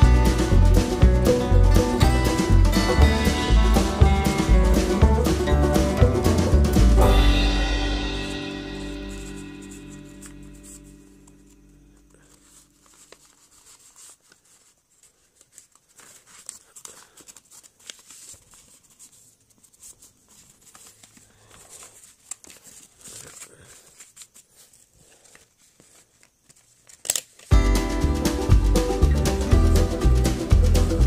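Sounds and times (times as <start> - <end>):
loud music: 0.0 - 9.8, 27.6 - 31.0
paper fan rustling: 8.7 - 27.5.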